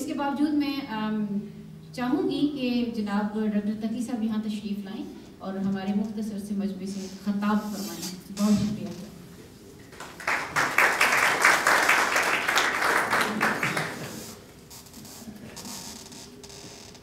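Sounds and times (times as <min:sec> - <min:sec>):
small audience applauding: 0:09.9 - 0:14.4.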